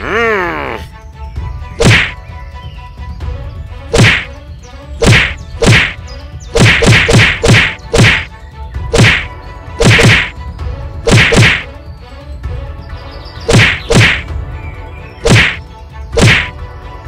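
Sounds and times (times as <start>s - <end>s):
cartoon punch whacks: 1.8s - 2.2s, 3.9s - 4.3s, 5.0s - 6.0s, 6.6s - 8.3s, 8.9s - 10.4s, 11.0s - 11.7s, 13.5s - 14.3s, 15.2s - 16.6s.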